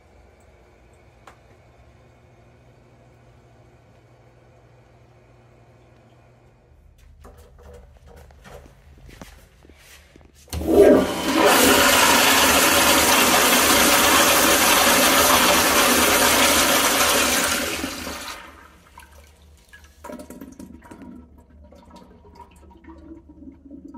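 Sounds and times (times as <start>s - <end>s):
toilet flushing: 10.5s - 23.9s.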